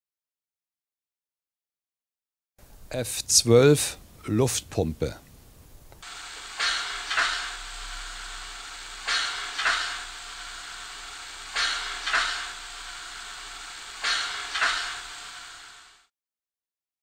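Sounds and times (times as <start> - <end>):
steady hiss: 2.6 - 16.1
hissing puffs from small speaker: 6.0 - 16.1.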